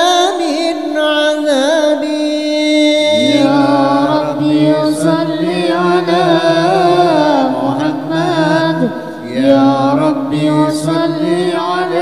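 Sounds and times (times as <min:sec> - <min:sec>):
man singing melismatic line: 0:02.2 - 0:04.4.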